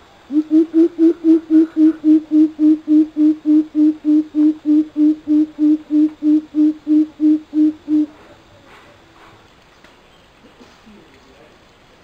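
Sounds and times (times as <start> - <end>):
bird hooting deeply: 0.3 - 8.2.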